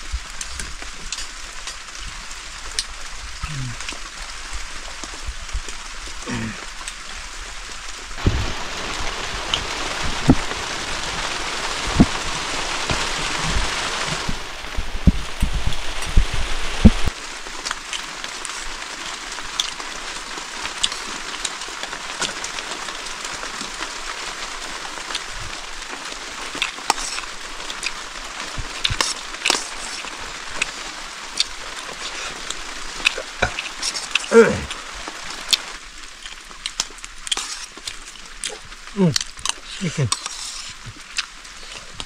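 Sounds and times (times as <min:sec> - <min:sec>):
food sizzling in a pan: 0:26.2 - 0:35.8.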